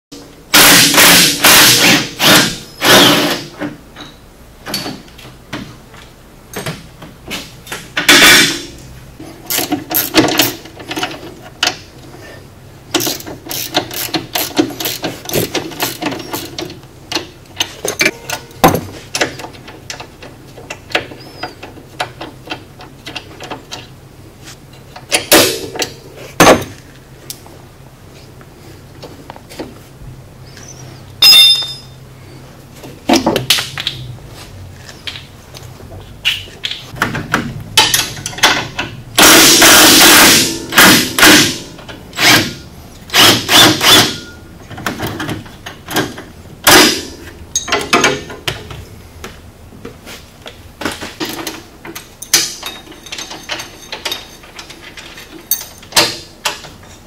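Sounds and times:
metal parts clanking: 7.7s - 8.8s, 13.0s - 23.9s, 31.2s - 32.0s, 36.2s - 42.6s, 43.2s - 48.7s, 50.8s - 57.0s
ratchet wrench clicking: 13.0s - 17.3s.

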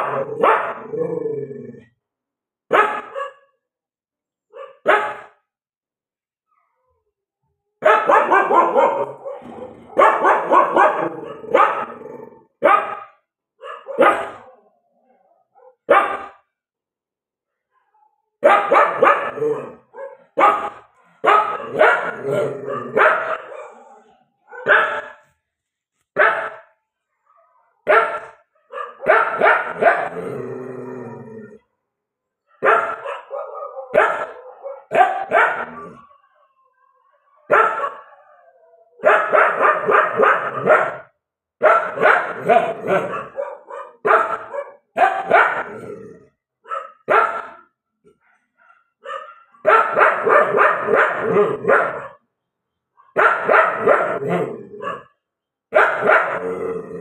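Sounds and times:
dog barking: 0.0s - 1.0s, 2.7s - 3.6s, 4.4s - 5.5s, 7.8s - 14.7s, 15.4s - 16.5s, 18.0s - 25.4s, 26.1s - 30.4s, 32.4s - 36.1s, 37.2s - 38.3s, 39.0s - 52.3s, 52.9s - 56.8s
dog howling: 35.6s - 39.0s.

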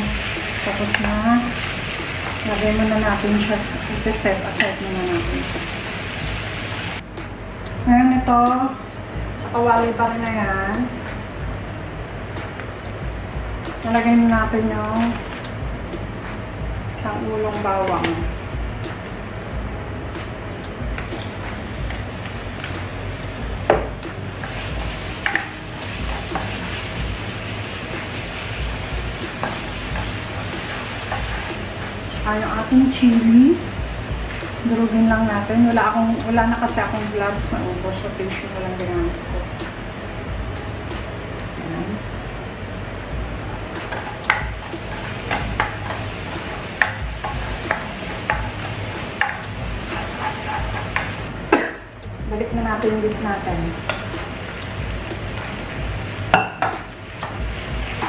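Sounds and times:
garlic sizzling in hot oil: 0.0s - 7.0s, 21.0s - 41.6s, 42.2s - 51.3s, 52.6s - 58.0s
spatula scraping and knocking pan: 28.8s - 31.6s, 43.8s - 51.3s.

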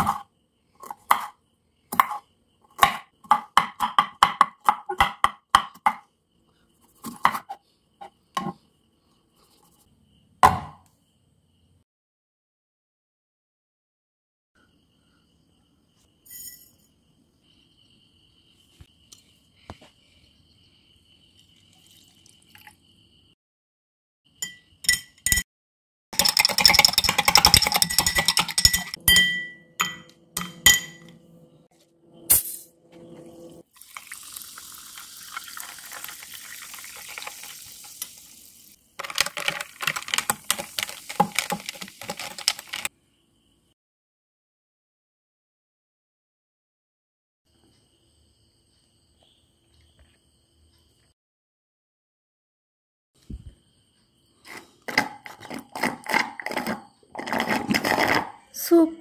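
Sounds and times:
soda water pouring: 21.4s - 22.8s, 33.6s - 42.9s
ice cubes clinking into glass: 26.2s - 29.2s, 33.8s - 38.2s, 39.0s - 42.9s
crackling fizz: 33.6s - 42.9s.

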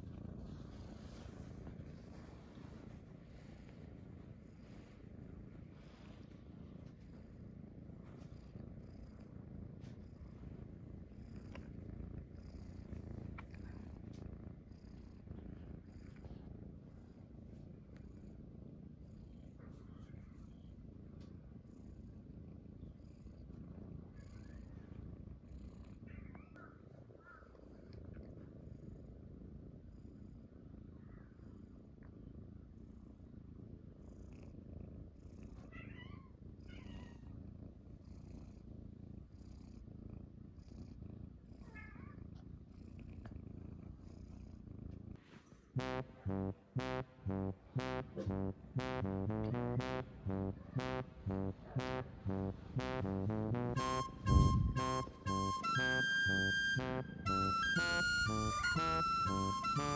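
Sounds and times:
cat purring: 0.0s - 59.8s.

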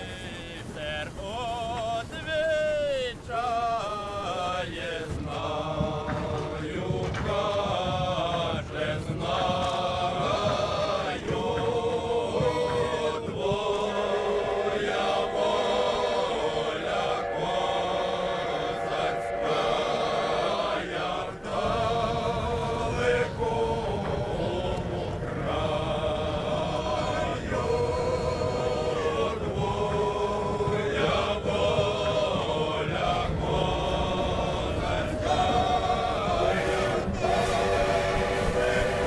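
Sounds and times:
men singing chant-like song: 0.0s - 39.0s
steady low rumble: 0.0s - 39.0s.

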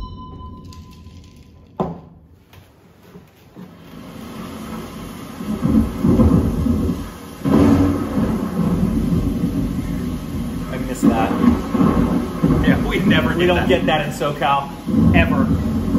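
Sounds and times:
rain: 3.6s - 15.9s
thunder crack: 4.0s - 15.9s
rolling thunder: 4.2s - 15.9s.

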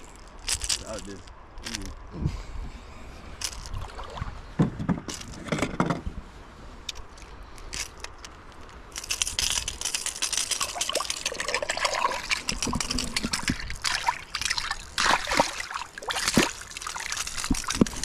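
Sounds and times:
water splashing and trickling: 0.0s - 1.9s, 3.4s - 5.4s, 6.9s - 18.0s
clicks and knocks of handling fish: 6.9s - 18.0s.

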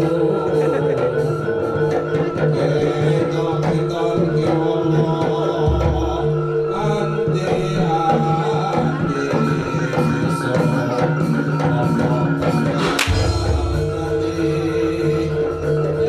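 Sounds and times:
steady drumming: 0.0s - 16.0s
deep low drum stroke: 12.6s - 15.6s.

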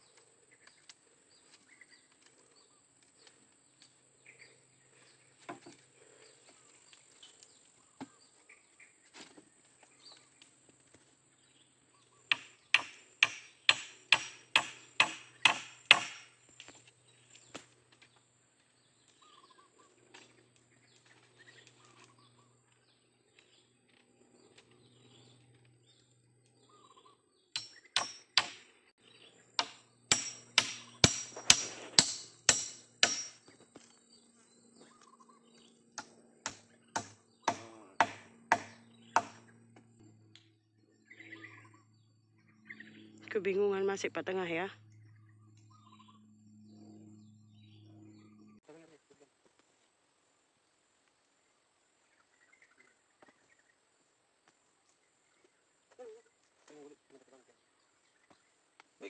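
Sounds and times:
metal tool striking wooden pole: 12.3s - 16.3s, 27.6s - 28.7s, 29.6s - 33.5s, 36.5s - 39.4s.

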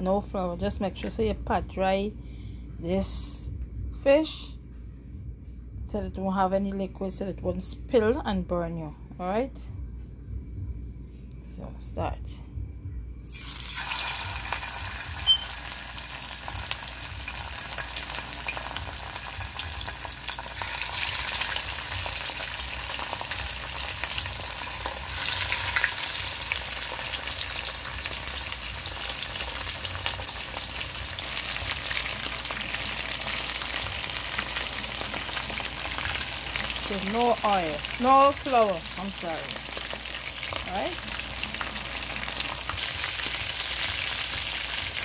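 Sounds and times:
fish sizzling in hot oil: 13.3s - 45.0s.

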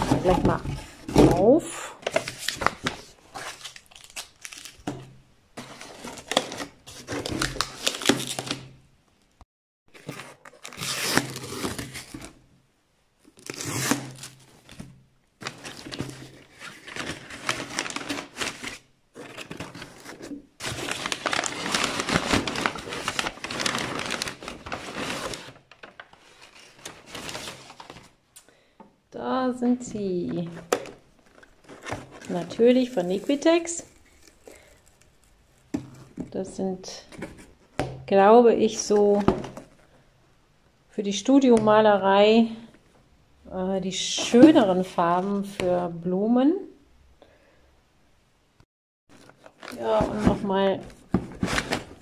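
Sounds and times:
packing paper rustling: 2.0s - 8.7s, 9.9s - 12.4s, 13.2s - 28.2s, 30.4s - 36.2s, 49.1s - 52.0s.

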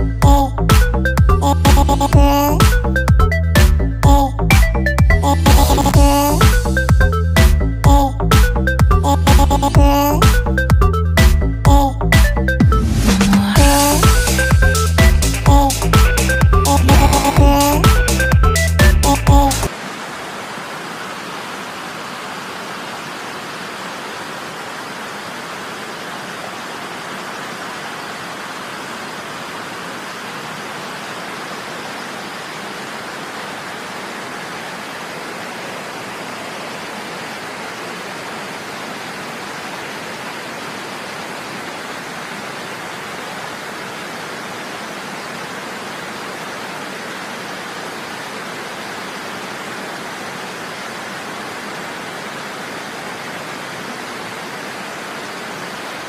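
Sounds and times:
water rushing over a weir: 19.4s - 56.0s.

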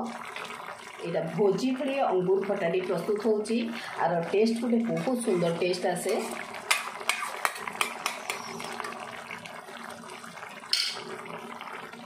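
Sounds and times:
thick sauce bubbling and hissing: 0.0s - 12.0s
spoon scraping pan: 5.2s - 8.9s
spoon clinking against pan: 10.8s - 11.0s.

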